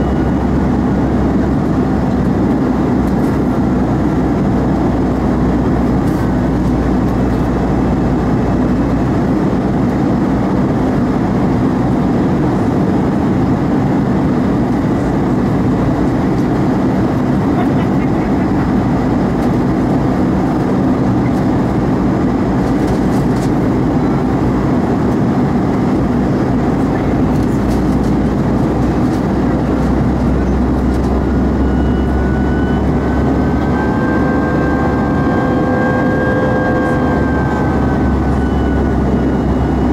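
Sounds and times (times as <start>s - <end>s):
jet engine rumble: 0.0s - 39.9s
low hum: 0.0s - 39.9s
faint thin whine: 30.2s - 39.9s.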